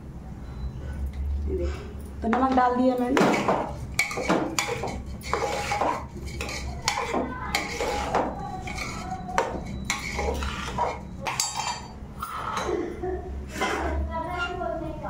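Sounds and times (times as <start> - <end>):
spoon scraping and clinking pot: 3.2 - 12.0.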